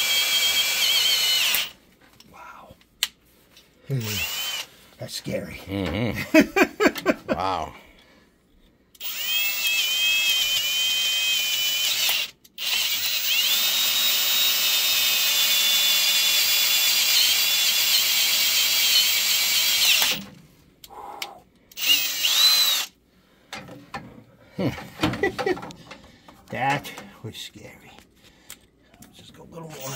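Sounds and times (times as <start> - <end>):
cordless drill motor whine: 0.0 - 1.8, 4.0 - 4.7, 9.0 - 20.2, 21.8 - 23.0.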